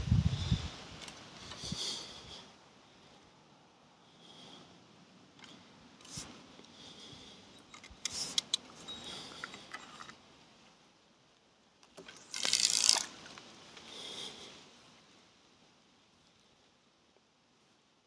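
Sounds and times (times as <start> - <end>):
sharp handling clicks: 7.6 - 10.2, 11.8 - 13.1.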